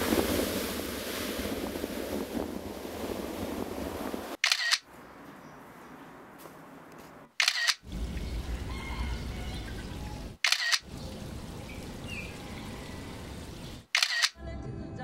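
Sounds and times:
camera shutter click: 0:04.4 - 0:04.8, 0:07.4 - 0:07.8, 0:10.4 - 0:10.8, 0:14.0 - 0:14.4.

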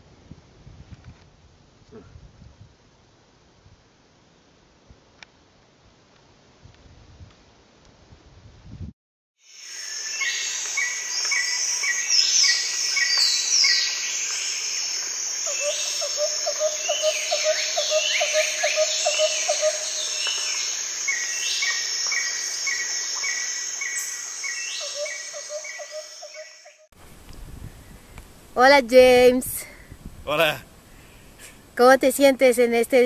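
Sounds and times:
high insect drone: 0:09.4 - 0:26.8.

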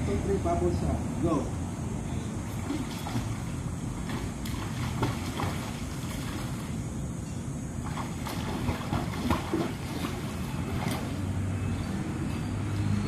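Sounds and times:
water splashes from swimmer: 0:02.5 - 0:06.7, 0:07.8 - 0:11.2.

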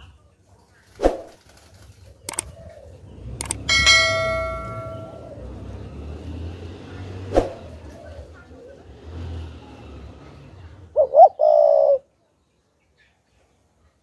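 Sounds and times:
mouse clicks: 0:02.3 - 0:02.5
bell ringing: 0:03.4 - 0:05.6.

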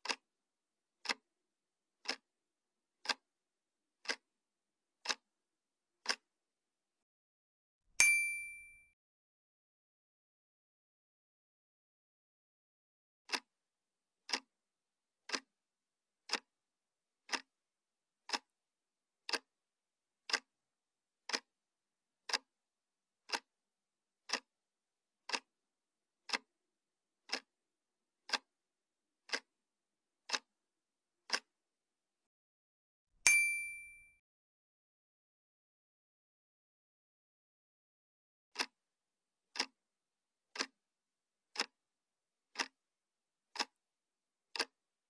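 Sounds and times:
clock ticking: 0:00.0 - 0:00.3, 0:01.0 - 0:01.3, 0:02.0 - 0:02.3, 0:03.0 - 0:03.3, 0:04.0 - 0:04.3, 0:05.0 - 0:05.3, 0:06.0 - 0:06.3, 0:13.3 - 0:13.5, 0:14.2 - 0:14.5, 0:15.2 - 0:15.5, 0:16.2 - 0:16.5, 0:17.2 - 0:17.6, 0:18.2 - 0:18.5, 0:19.2 - 0:19.5, 0:20.2 - 0:20.5, 0:21.2 - 0:21.5, 0:22.2 - 0:22.5, 0:23.2 - 0:23.5, 0:24.2 - 0:24.5, 0:25.2 - 0:25.5, 0:26.3 - 0:26.5, 0:27.2 - 0:27.5, 0:28.3 - 0:28.6, 0:29.2 - 0:29.6, 0:30.2 - 0:30.6, 0:31.2 - 0:31.6, 0:38.6 - 0:38.8, 0:39.5 - 0:39.8, 0:40.5 - 0:40.8, 0:41.5 - 0:41.8, 0:42.5 - 0:42.8, 0:43.5 - 0:43.8, 0:44.5 - 0:44.8
bright bell ding: 0:08.0 - 0:08.9, 0:33.3 - 0:34.2.

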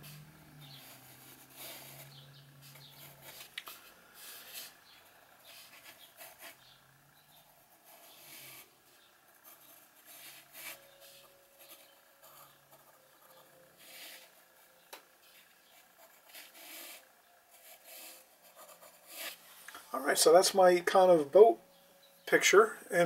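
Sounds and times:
pencil scratching on paper: 0:00.0 - 0:03.5, 0:04.2 - 0:08.7, 0:09.4 - 0:14.4, 0:15.3 - 0:19.4.

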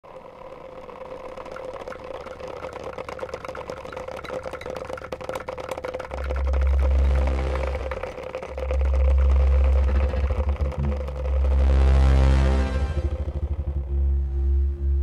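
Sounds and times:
low hum: 0:00.0 - 0:15.0
mallets rattling on speaker cone: 0:02.9 - 0:12.0
loudspeaker steady tone: 0:06.5 - 0:15.0.

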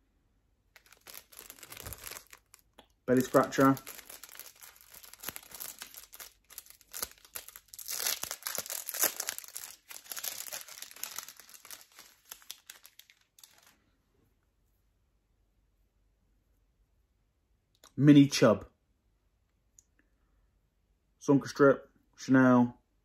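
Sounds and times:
packaging crinkling in hands: 0:00.7 - 0:13.8.

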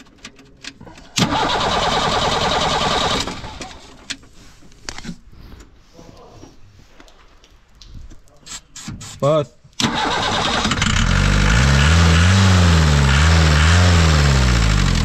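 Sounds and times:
diesel engine cranking on starter: 0:01.1 - 0:04.0, 0:09.8 - 0:15.0.

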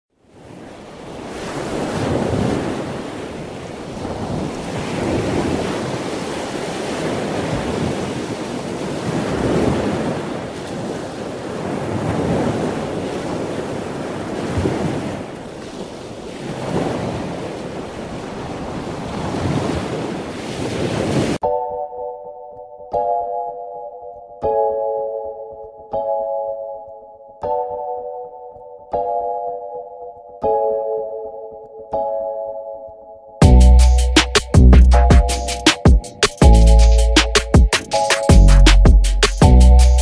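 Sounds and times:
wind: 0:00.1 - 0:21.7
waves breaking: 0:00.3 - 0:21.4.

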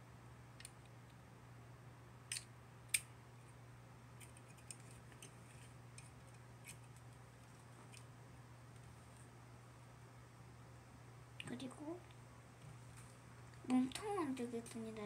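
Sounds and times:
low steady hum: 0:00.0 - 0:15.0
sharp plastic snaps: 0:02.3 - 0:03.1.

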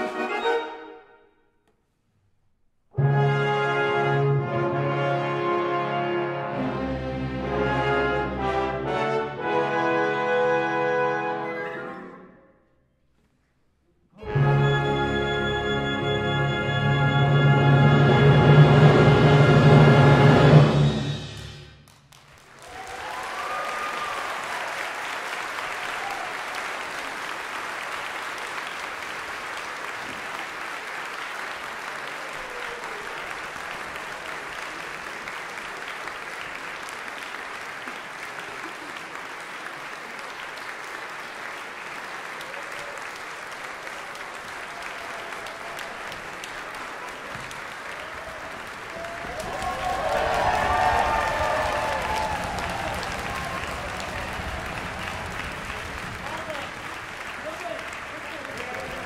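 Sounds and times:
audience applauding: 0:21.4 - 0:59.0.

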